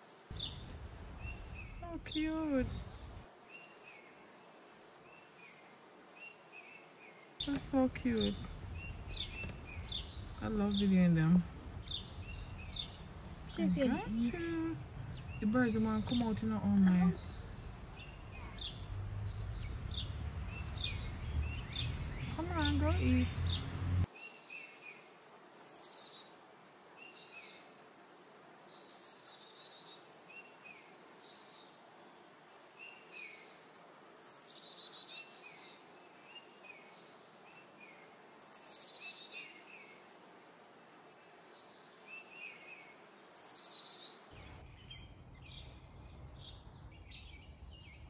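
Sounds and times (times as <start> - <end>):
finch singing: 0.1 - 3.2, 7.4 - 24.1
low steady rumble: 7.6 - 24.1.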